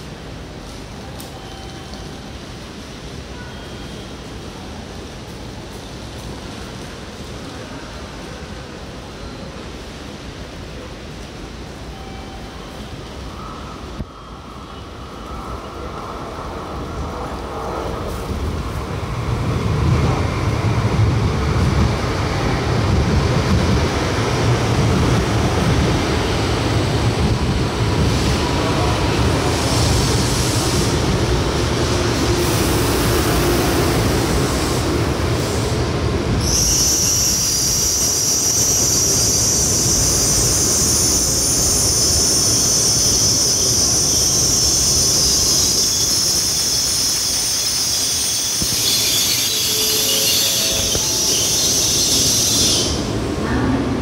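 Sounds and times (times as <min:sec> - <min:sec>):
train rolling in rumble: 0:15.0 - 0:54.0
high-pitched brake squeal: 0:36.4 - 0:53.1.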